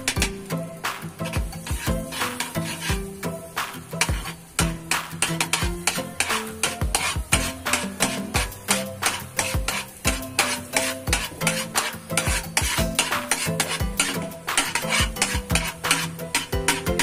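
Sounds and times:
butter sizzling: 0.0s - 17.0s
metal spatula scraping wok: 0.0s - 17.0s.

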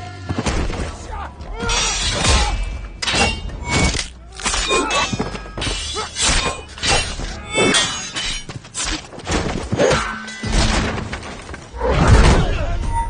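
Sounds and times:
swords clashing: 1.6s - 10.8s.

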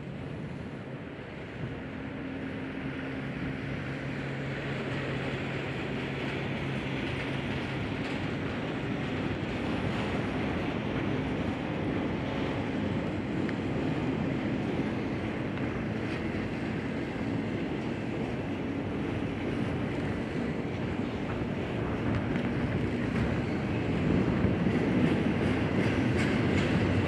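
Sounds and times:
locomotive engine hum: 0.0s - 27.0s
train rushing noise: 0.0s - 27.0s.

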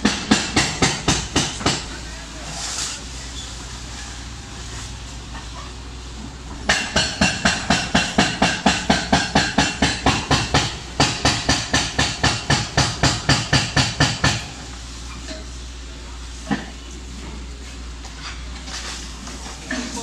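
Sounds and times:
hydraulic breaker hammering concrete: 0.0s - 2.0s, 6.6s - 14.7s.

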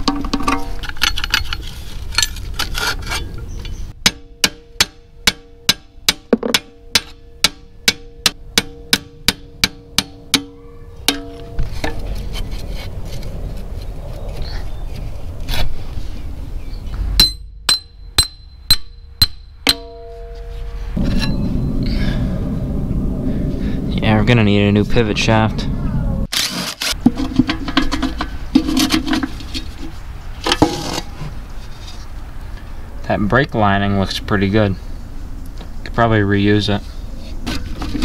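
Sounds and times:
hammer striking steel: 4.0s - 11.6s, 17.2s - 21.7s.

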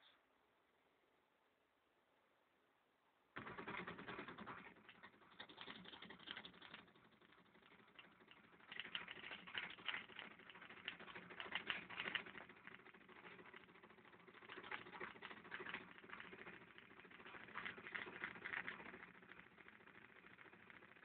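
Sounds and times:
fast irregular faint clicking: 3.4s - 21.0s.

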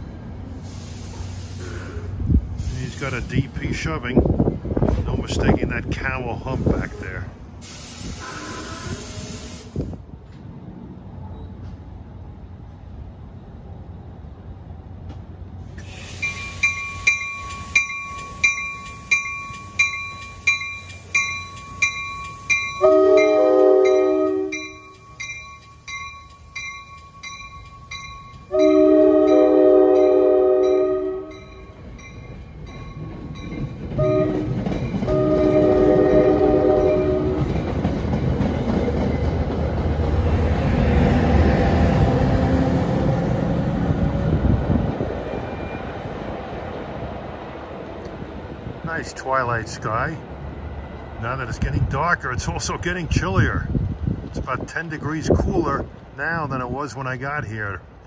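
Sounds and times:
train engine and wheel rumble: 0.0s - 58.0s
locomotive air horn: 8.1s - 9.6s, 22.8s - 24.8s, 28.5s - 31.4s, 34.0s - 37.5s
crossing bell ringing: 16.2s - 38.4s.

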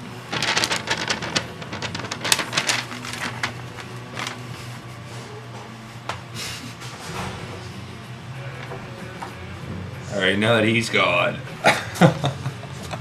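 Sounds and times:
paper rustling and crinkling: 0.3s - 5.3s.

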